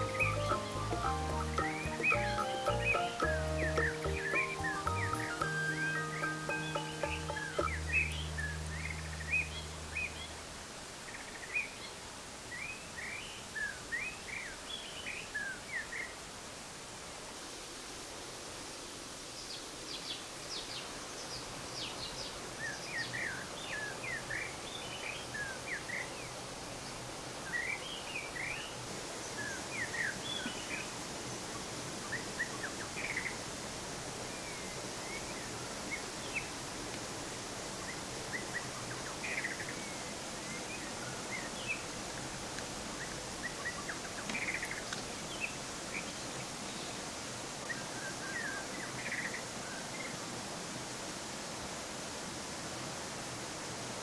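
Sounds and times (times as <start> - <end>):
small birds chirping: 0.0 - 10.4
flowing water rushing: 0.0 - 14.6, 15.6 - 54.0.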